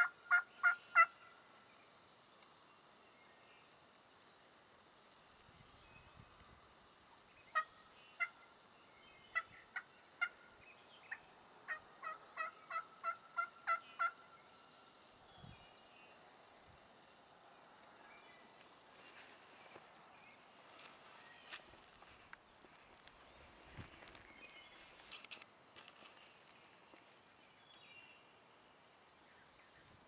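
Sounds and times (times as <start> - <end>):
turkey yelping: 0.0 - 1.1.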